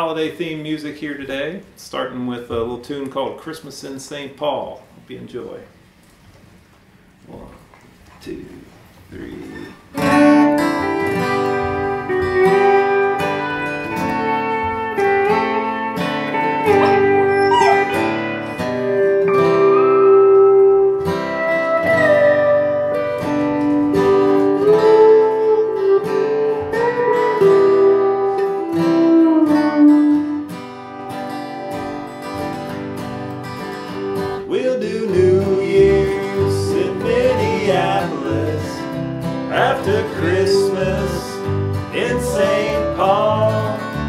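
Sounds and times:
acoustic guitar strumming: 9.8 - 44.0
country string band instrumental: 10.0 - 34.4, 35.2 - 44.0
sliding melody line: 16.4 - 18.6, 34.6 - 38.9, 39.5 - 44.0.

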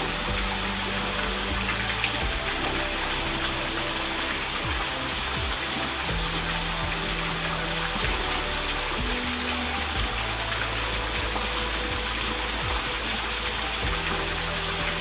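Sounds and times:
waterfall splashing into pool: 0.0 - 15.0.

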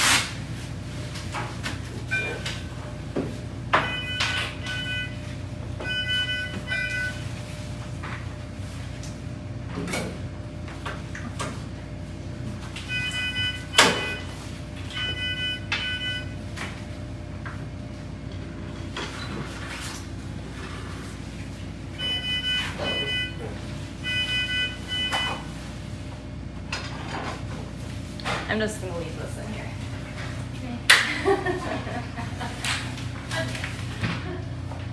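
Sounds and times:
patient monitor beeping: 2.1 - 2.7, 3.7 - 7.4, 12.8 - 16.6, 21.9 - 25.6.

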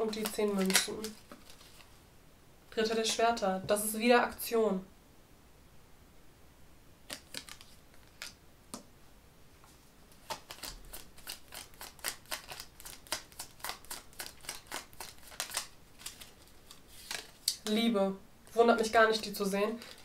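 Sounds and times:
cards being shuffled: 0.0 - 1.9, 7.1 - 8.4, 10.1 - 17.6, 19.2 - 20.0.

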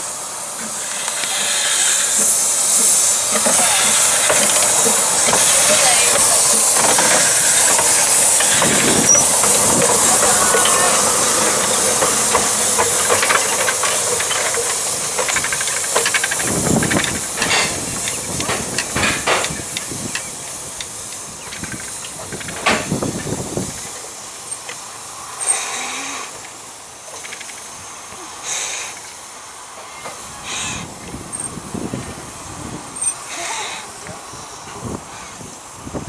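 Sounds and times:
short steam puffs: 0.0 - 36.0
steam locomotive hissing steam: 0.0 - 36.0
locomotive knocks: 2.2 - 23.9.

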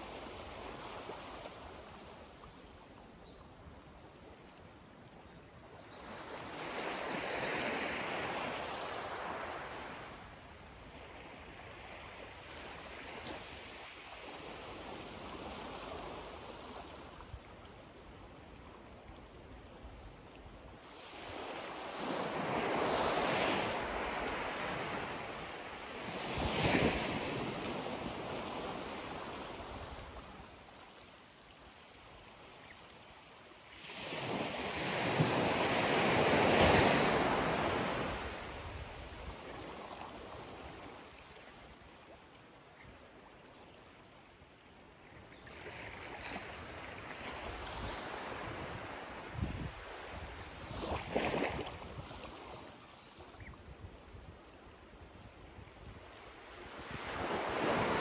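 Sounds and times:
small waves washing onto sand: 33.2 - 54.2.

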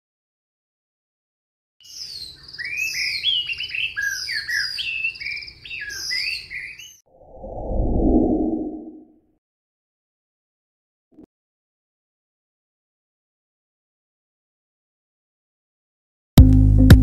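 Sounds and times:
birdsong chirps and trills: 1.8 - 7.0
low whoosh: 7.2 - 9.1.

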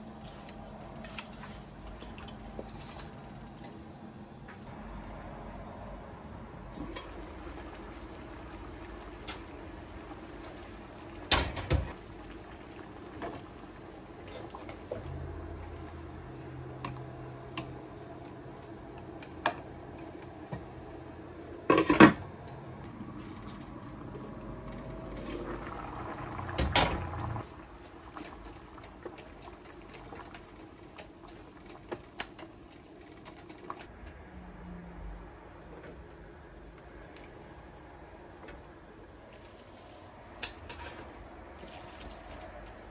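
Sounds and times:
water boiling in a pot: 0.0 - 5.4, 6.7 - 22.2, 22.8 - 42.9
low hum: 14.9 - 30.4.

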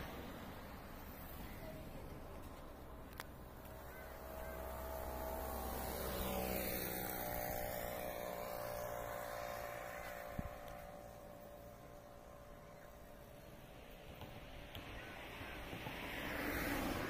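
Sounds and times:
vehicle driving past: 3.4 - 13.7, 15.2 - 17.0.

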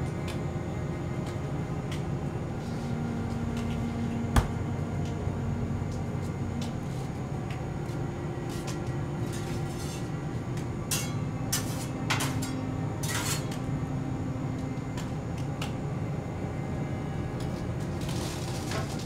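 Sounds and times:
low kitchen hum: 0.0 - 19.0
dishes and utensils clinking: 10.9 - 13.6.

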